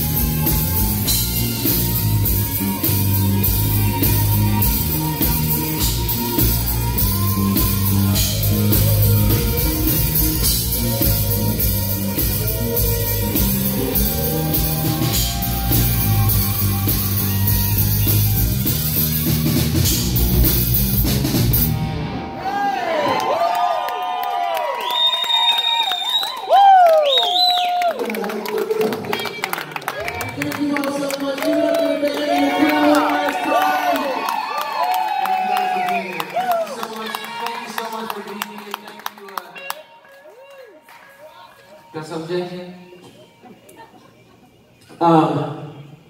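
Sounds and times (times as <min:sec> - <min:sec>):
rock band playing: 0:00.0 - 0:23.0, 0:38.3 - 0:40.4.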